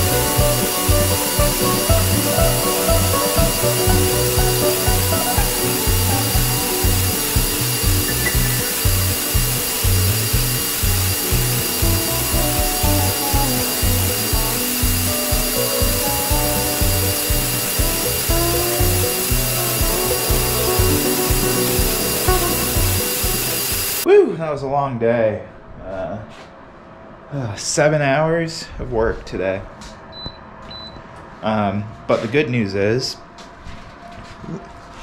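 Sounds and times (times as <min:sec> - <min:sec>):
background music with beat: 0:00.0 - 0:24.0
sander grinding metal: 0:00.0 - 0:24.0.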